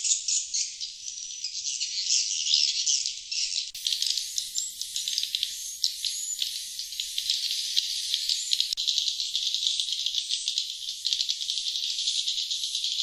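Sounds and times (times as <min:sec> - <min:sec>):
swiftlets twittering: 0:03.8 - 0:13.0.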